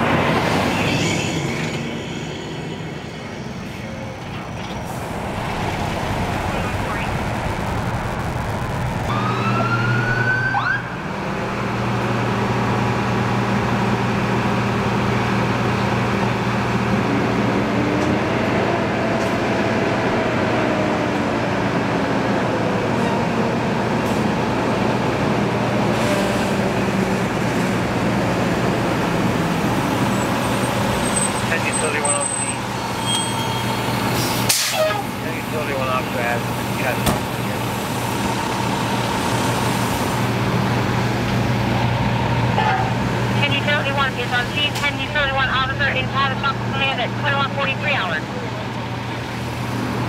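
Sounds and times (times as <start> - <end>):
low engine hum: 3.7 - 31.7
rising siren whoop: 5.0 - 11.2
siren wailing up and down: 5.5 - 11.1.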